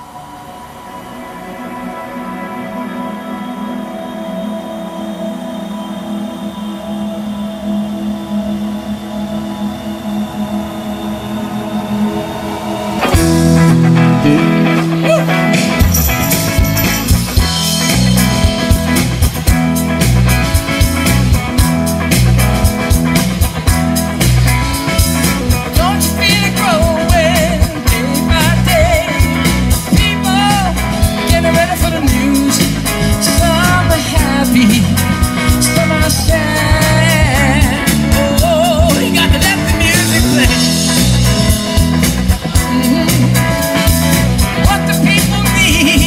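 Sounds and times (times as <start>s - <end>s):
electric guitar: 0.0s - 46.0s
person singing: 13.0s - 15.8s, 25.5s - 46.0s
drum kit beat: 13.0s - 46.0s.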